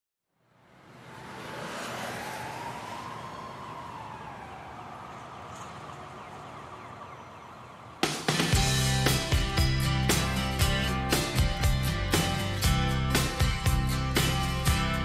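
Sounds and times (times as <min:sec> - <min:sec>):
rock band with guitar and drums: 0:08.0 - 0:15.0.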